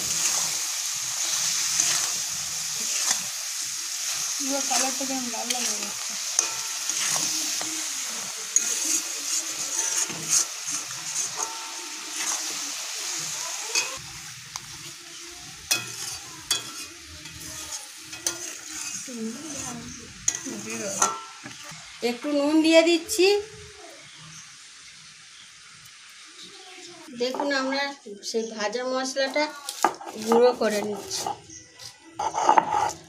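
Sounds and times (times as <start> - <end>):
metal spatula scraping pan: 0.0 - 12.7, 13.7 - 14.0, 15.7 - 21.6, 29.8 - 31.5, 32.2 - 33.0
oil sizzling in a pan: 0.0 - 33.0.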